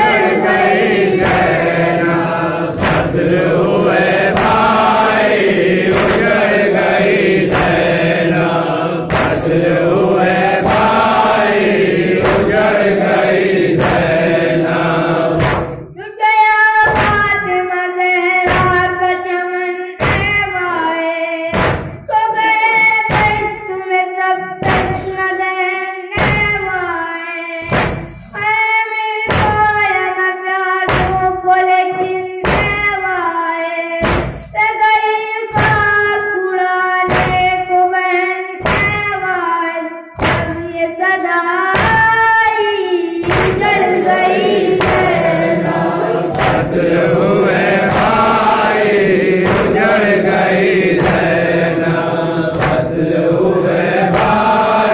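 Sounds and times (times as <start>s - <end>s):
group of men chanting: 0.0s - 15.9s, 41.7s - 54.9s
chest-beating thuds: 0.0s - 16.0s, 21.5s - 22.1s, 27.7s - 28.3s, 34.0s - 34.5s, 40.2s - 40.7s, 41.7s - 42.4s, 43.1s - 54.9s
boy reciting through microphone: 0.0s - 54.9s.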